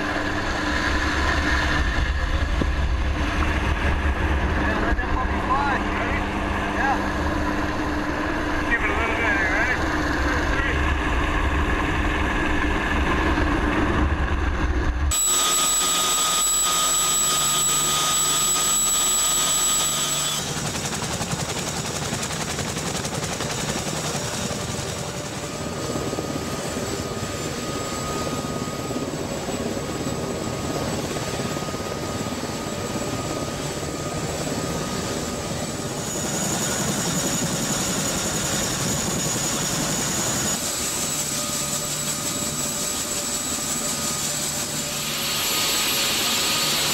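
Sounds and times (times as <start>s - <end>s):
aircraft engines turbine whine: 0.0s - 46.9s.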